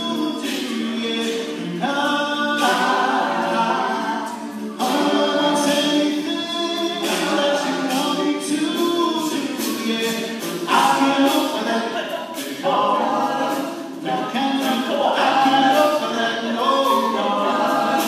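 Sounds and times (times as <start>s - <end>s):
male a cappella group singing: 0.0s - 18.0s
sharp ticking beat: 0.0s - 18.0s.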